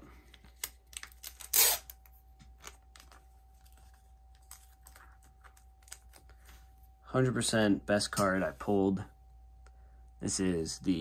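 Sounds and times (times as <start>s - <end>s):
plastic crinkles and clicks: 0.3s - 6.5s.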